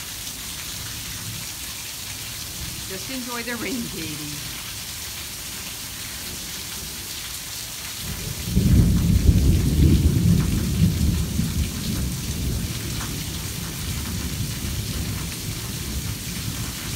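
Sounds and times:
torrential rain: 0.0 - 16.9
thunder rumble: 8.5 - 16.4.

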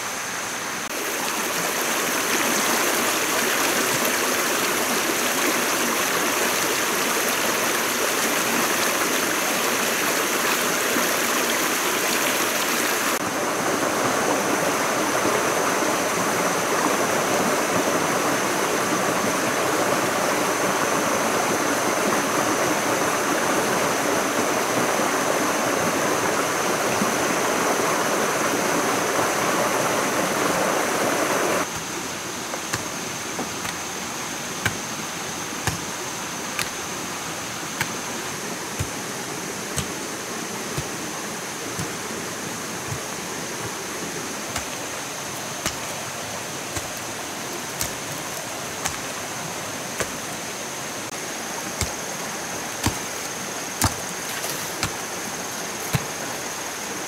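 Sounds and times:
stream rushing over rocks: 0.0 - 57.0
hoe knocking into soil: 32.6 - 33.8, 34.6 - 34.9, 35.6 - 36.0, 36.6 - 36.8, 37.8 - 38.0, 38.7 - 39.0, 39.7 - 40.0, 41.8 - 42.1, 44.5 - 44.9, 45.6 - 46.0, 47.7 - 49.1, 51.7 - 52.0, 52.8 - 53.1, 53.8 - 55.0, 55.8 - 56.2.

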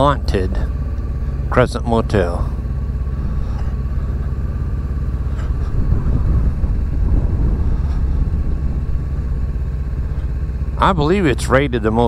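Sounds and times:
motorcycle engine rumbling: 0.0 - 12.0
wind on microphone: 5.3 - 10.4.

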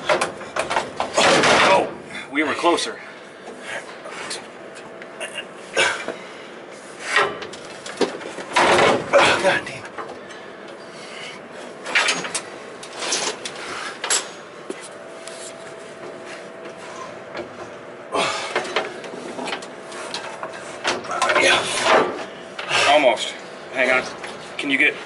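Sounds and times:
heavy metal parts scraping: 11.8 - 14.5.

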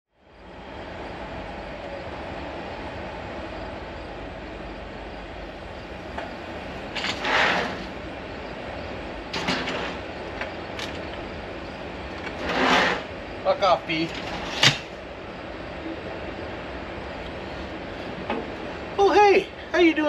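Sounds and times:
steady background rumble: 0.2 - 20.0
sliding glass door opening: 6.1 - 8.0, 9.2 - 11.2, 12.1 - 13.2, 13.9 - 15.0.

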